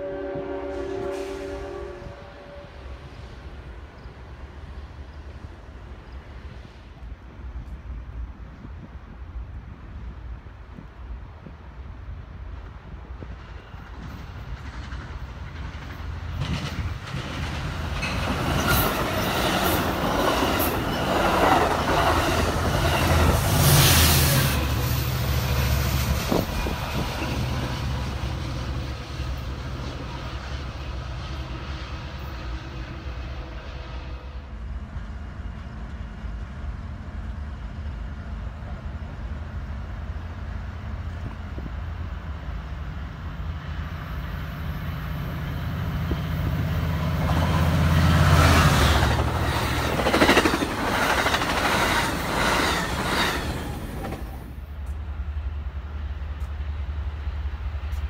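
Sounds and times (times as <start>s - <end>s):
train wheels clickety-clack: 12.6s - 31.4s, 45.8s - 55.0s.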